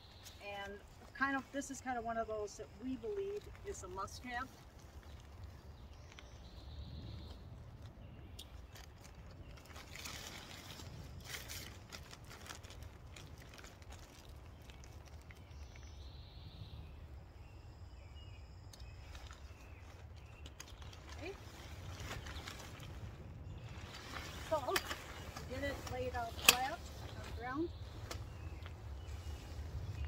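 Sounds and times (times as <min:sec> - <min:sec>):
nylon tent fabric rustling: 0:08.6 - 0:15.6, 0:18.9 - 0:30.0.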